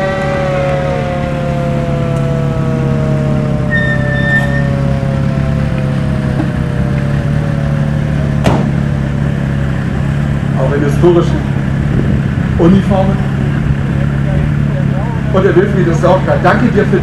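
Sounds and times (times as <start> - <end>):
siren winding down: 0.0 - 8.4
military vehicle engines driving past: 0.0 - 17.0
brief high tone: 3.7 - 4.9.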